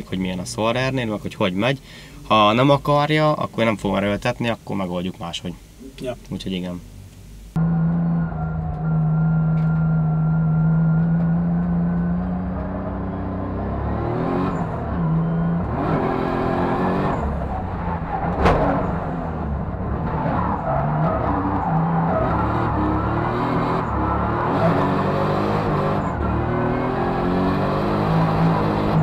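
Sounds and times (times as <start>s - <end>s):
car engine revving: 7.6s - 29.0s
sharp crack: 17.9s - 19.9s.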